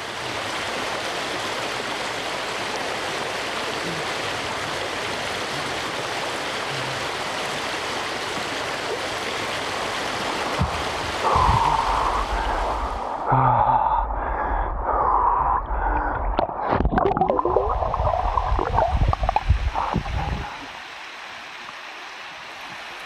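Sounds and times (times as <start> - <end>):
water rushing over stones: 0.0 - 13.3, 14.6 - 23.0
man breathing out hard: 11.2 - 16.4.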